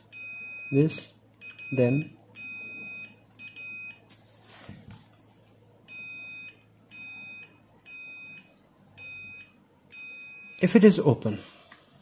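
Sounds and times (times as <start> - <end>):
multimeter high-pitched beeps: 0.1 - 4.0, 5.9 - 10.8.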